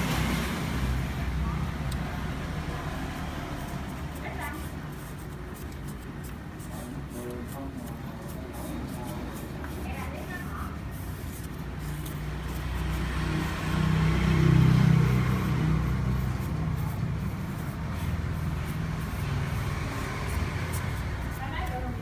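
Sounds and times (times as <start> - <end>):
vehicle engine running: 9.9 - 22.0.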